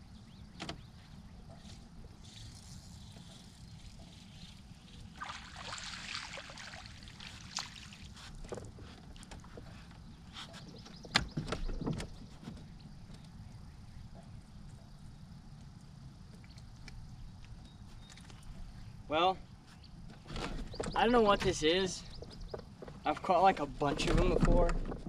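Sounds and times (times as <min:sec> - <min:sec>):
fish splashing at water surface: 0:05.1 - 0:08.4.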